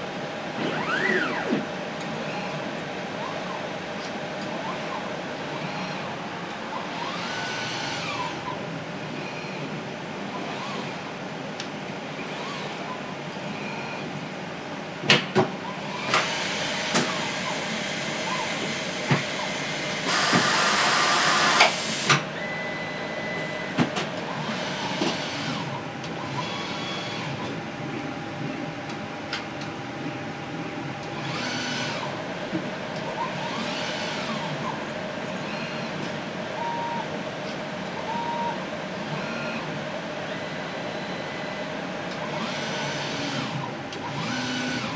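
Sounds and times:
steady machine hum: 0:00.0 - 0:44.9
robot arm motors whining: 0:00.6 - 0:02.6, 0:06.8 - 0:08.6, 0:10.4 - 0:11.0, 0:12.2 - 0:12.8, 0:24.4 - 0:27.5, 0:31.2 - 0:32.1, 0:42.4 - 0:44.9.

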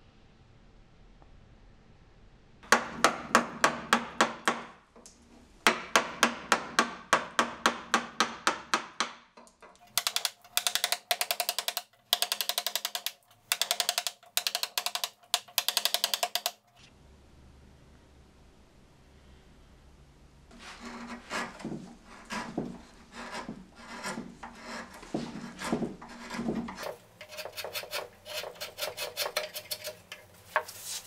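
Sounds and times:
gouge tapping into wood: 0:09.9 - 0:16.6.

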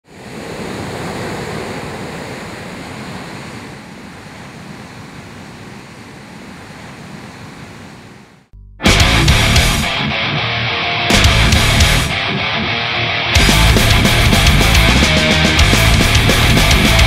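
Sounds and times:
ocean waves breaking: 0:00.0 - 0:08.4.

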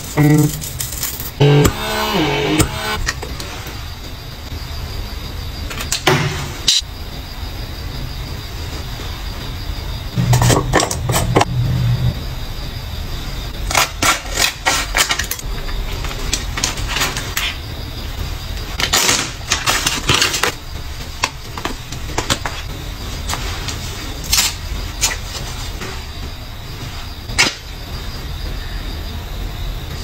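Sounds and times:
low steady hum: 0:10.1 - 0:13.6.

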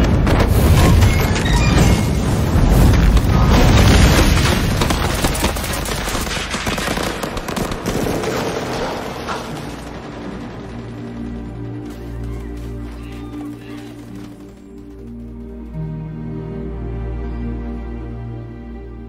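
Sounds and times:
film score: 0:00.0 - 0:19.0
rapid gunfire: 0:02.6 - 0:15.2.

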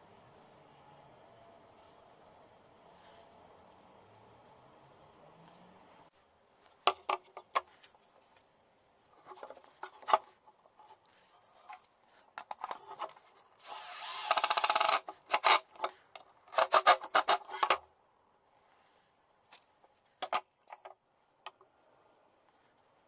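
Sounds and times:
cordless drill driving screw: 0:13.6 - 0:17.8.

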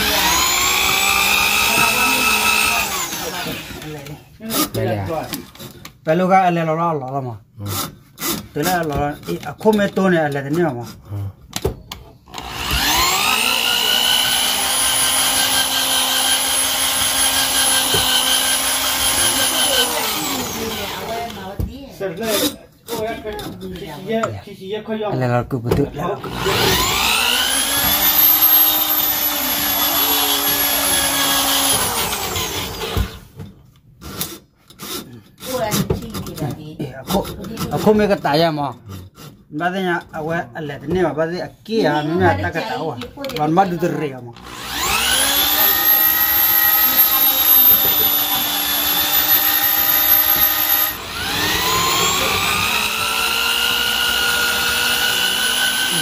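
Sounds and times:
drill spinning drain auger: 0:00.0 - 0:05.7, 0:12.3 - 0:21.6, 0:26.2 - 0:33.4, 0:44.4 - 0:56.0.

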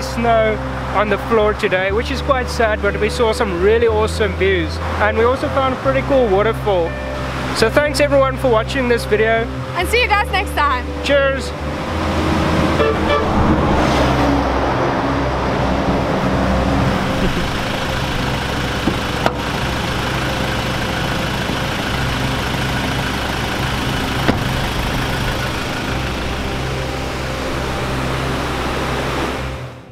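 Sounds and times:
pickup engine idling: 0:15.2 - 0:29.2
car door shutting: 0:17.2 - 0:19.6, 0:24.0 - 0:25.6.

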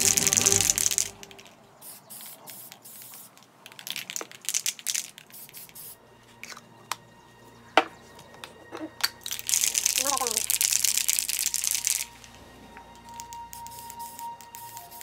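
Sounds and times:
spray can hissing: 0:00.0 - 0:06.0, 0:13.1 - 0:15.0.

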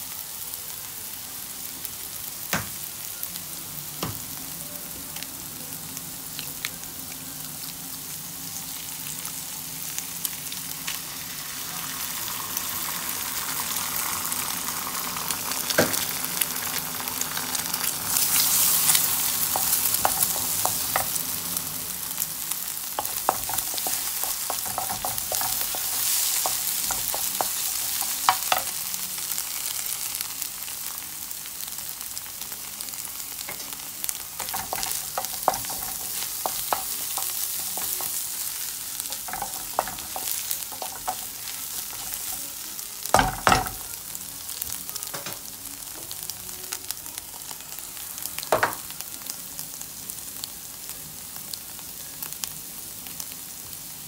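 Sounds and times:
onions sizzling in oil: 0:00.0 - 0:54.0.

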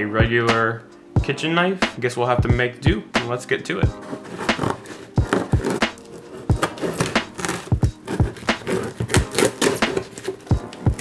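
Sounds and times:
knife cutting tape and cardboard: 0:04.0 - 0:11.0.

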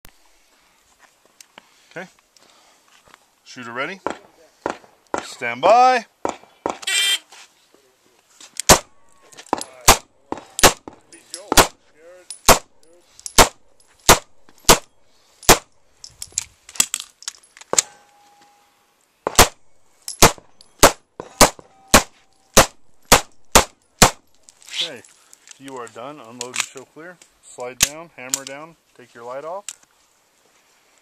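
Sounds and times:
pistol shots: 0:08.6 - 0:09.0, 0:09.8 - 0:11.8, 0:12.4 - 0:12.8, 0:13.4 - 0:14.9, 0:15.5 - 0:15.7, 0:19.2 - 0:19.6, 0:20.2 - 0:24.2.

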